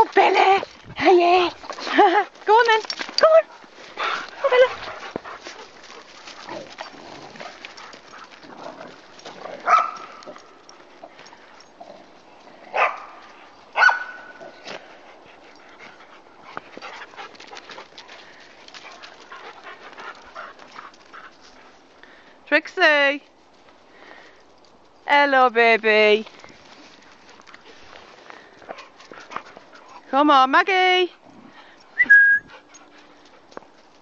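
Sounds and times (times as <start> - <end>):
dog barking: 9.7 - 10.0, 12.8 - 13.1, 13.8 - 14.3.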